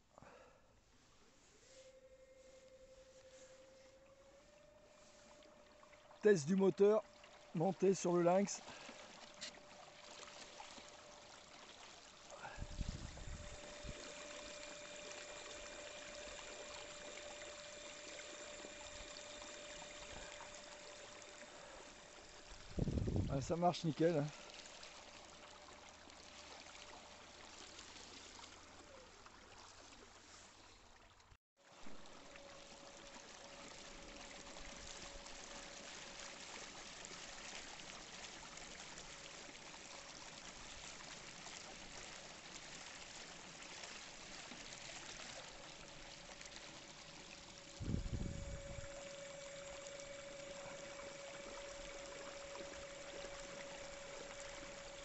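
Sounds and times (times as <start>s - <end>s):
water rushing along hull: 1.0s - 55.0s
electric motor whine: 1.6s - 6.2s, 12.4s - 23.3s, 46.6s - 55.0s.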